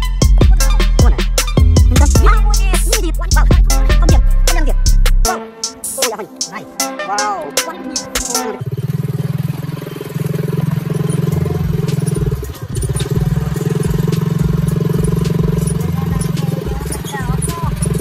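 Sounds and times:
hip hop music with rapping: 0:00.0 - 0:08.6, 0:10.9 - 0:18.0
engine running steadily: 0:08.2 - 0:18.0.

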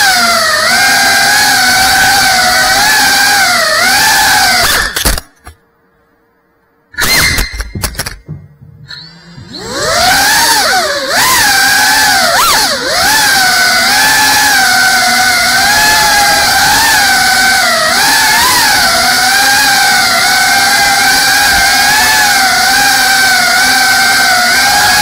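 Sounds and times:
drone motor whine: 0:00.0 - 0:05.5, 0:07.0 - 0:25.0.

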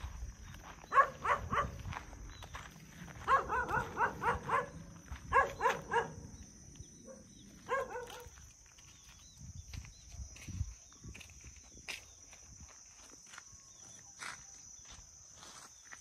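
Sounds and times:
dog barking: 0:00.9 - 0:01.8, 0:03.2 - 0:06.4, 0:07.0 - 0:08.4.

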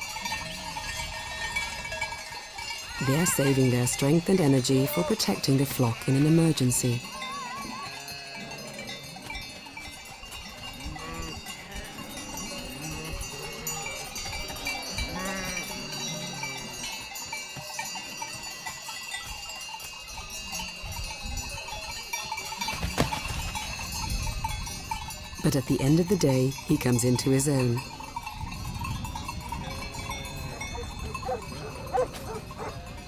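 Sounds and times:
sheep bells clanking: 0:00.0 - 0:33.0
sheep bleating: 0:07.2 - 0:08.6, 0:15.0 - 0:16.9.

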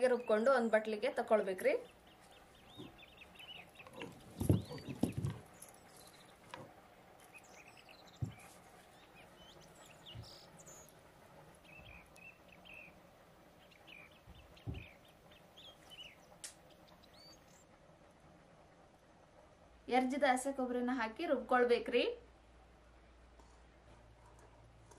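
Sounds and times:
small birds chirping: 0:00.0 - 0:17.7
soft knocks: 0:03.9 - 0:05.6, 0:08.2 - 0:08.4.

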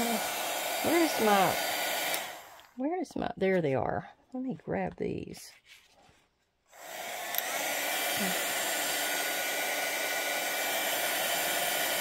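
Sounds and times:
heat gun blowing: 0:00.0 - 0:02.7, 0:06.7 - 0:12.0.

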